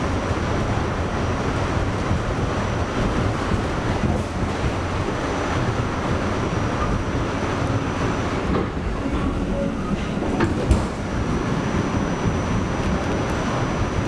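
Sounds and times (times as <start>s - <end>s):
subway train rumbling on rails: 0.0s - 14.0s.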